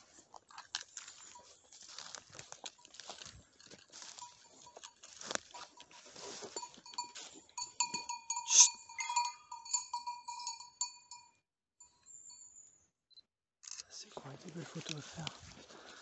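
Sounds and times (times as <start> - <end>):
rustling of brush and leaves: 0.0 - 7.4, 14.0 - 16.0
dog bells ringing: 1.0 - 12.8.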